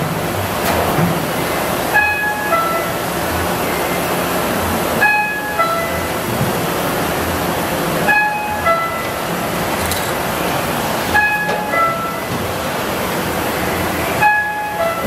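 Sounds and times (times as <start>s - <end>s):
printing press running: 0.0s - 15.0s
two-note electronic warning chime: 2.0s - 2.9s, 5.0s - 6.0s, 11.2s - 12.3s, 14.2s - 15.0s.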